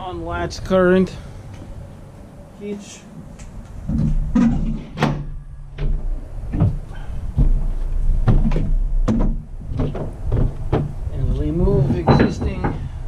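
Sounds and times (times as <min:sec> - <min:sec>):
knocks on truck bed: 0:07.4 - 0:11.0.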